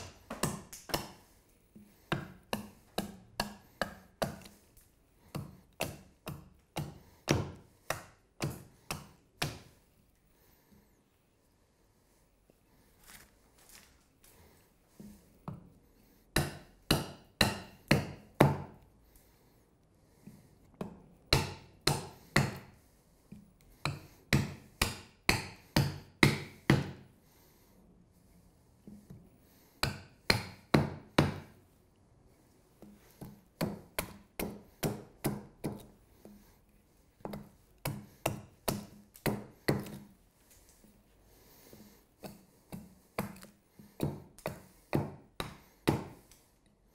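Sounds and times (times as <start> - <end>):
hatchet chopping wood: 0.0 - 1.2, 1.8 - 4.6, 5.3 - 9.7, 16.3 - 18.8, 20.8 - 22.7, 23.8 - 27.1, 29.8 - 31.6, 32.8 - 35.9, 37.2 - 40.1, 41.8 - 46.3.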